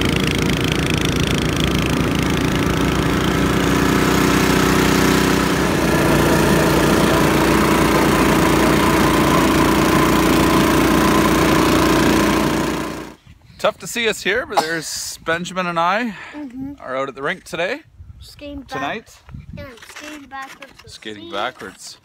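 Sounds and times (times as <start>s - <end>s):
snowblower engine running: 0.0s - 13.2s.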